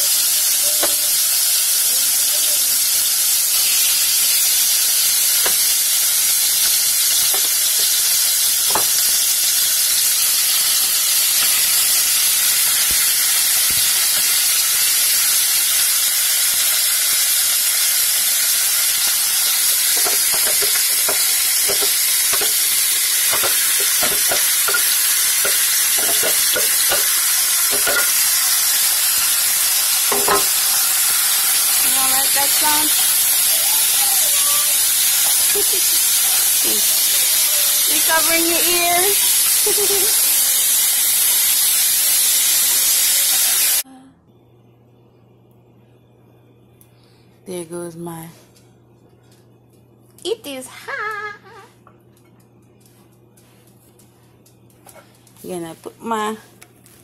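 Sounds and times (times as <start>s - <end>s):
chicken sizzling in oil: 0.0s - 43.8s.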